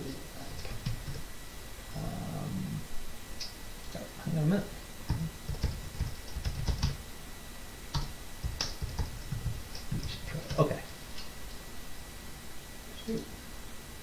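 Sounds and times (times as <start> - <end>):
keyboard typing clicks: 5.1 - 7.0, 7.9 - 10.7.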